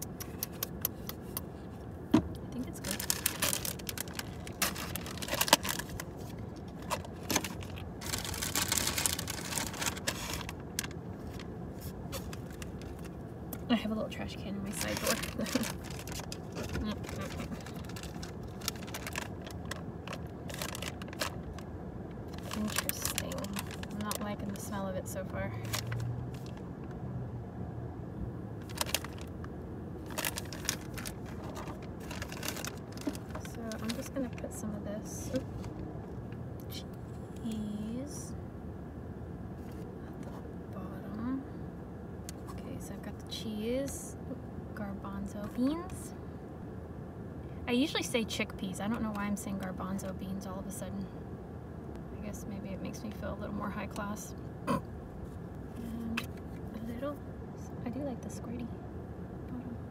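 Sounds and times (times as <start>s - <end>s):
plastic packaging crinkling: 2.7s - 13.2s, 14.7s - 21.7s, 22.3s - 24.3s, 25.6s - 26.6s, 28.6s - 29.3s, 30.0s - 34.4s.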